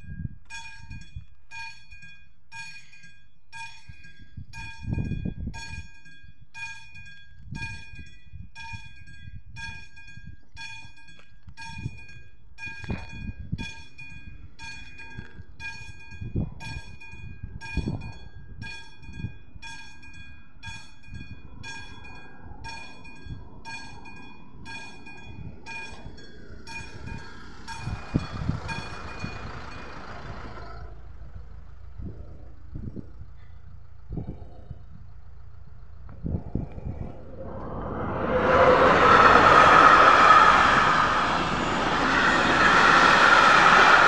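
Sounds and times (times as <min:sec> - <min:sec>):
level crossing warning bell: 0:00.5 - 0:31.8
low rumbles: 0:22.1 - 0:44.0.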